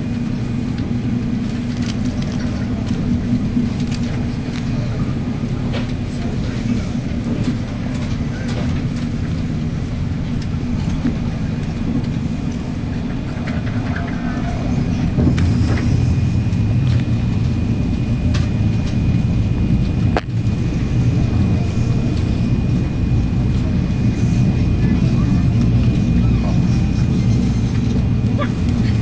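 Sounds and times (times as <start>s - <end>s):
low rumble of train wheels: 0.0s - 29.0s.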